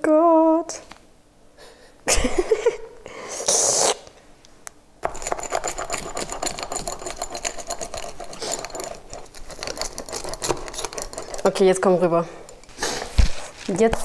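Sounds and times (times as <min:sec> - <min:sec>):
short loud hiss: 0:03.3 - 0:04.1.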